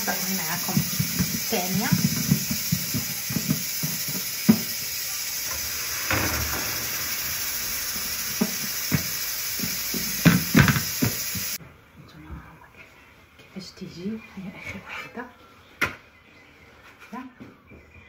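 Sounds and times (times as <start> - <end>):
flatbread sizzling in a pan: 0.0 - 11.6.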